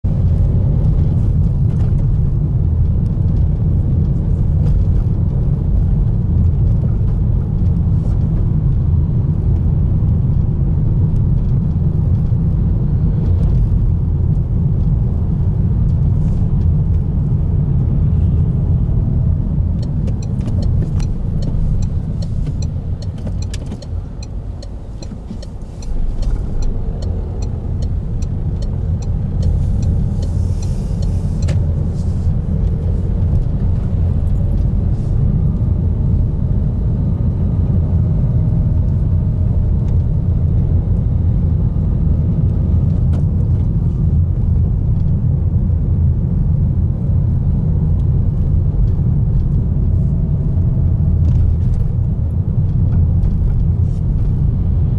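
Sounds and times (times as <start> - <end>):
car road and engine rumble: 0.0 - 54.9
light ticking clicks: 19.8 - 31.6.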